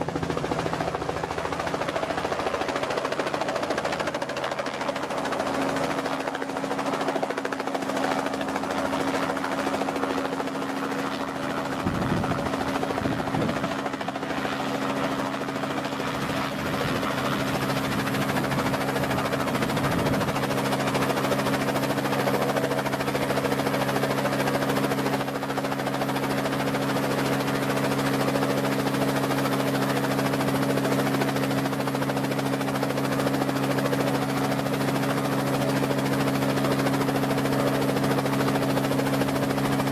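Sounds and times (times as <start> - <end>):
helicopter engine and rotor drone: 0.0 - 39.9
rotor wash rumbling on microphone: 11.8 - 13.8.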